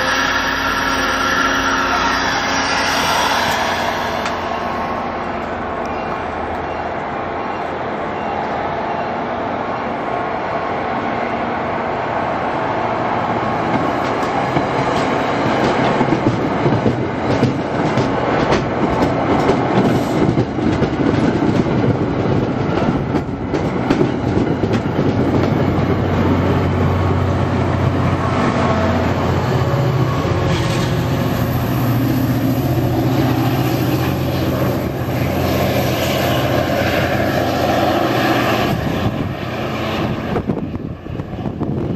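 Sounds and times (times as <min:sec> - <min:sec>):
diesel locomotive engine drone: 0:00.0 - 0:41.9
train wheels clicking over rail joints: 0:13.6 - 0:26.4.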